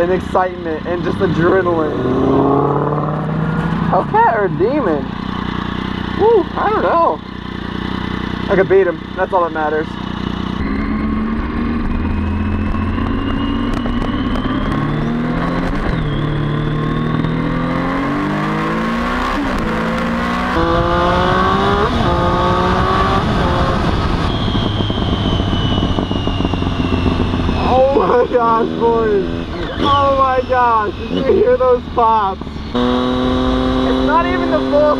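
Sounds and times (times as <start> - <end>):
motorcycle engine accelerating: 0.0 - 34.9
exhaust pops: 11.8 - 17.4.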